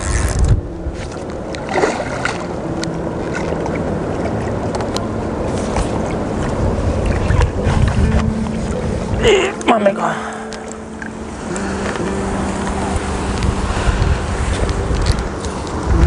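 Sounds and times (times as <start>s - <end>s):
choppy water: 0.0s - 16.0s
wind buffeting microphone: 0.0s - 16.0s.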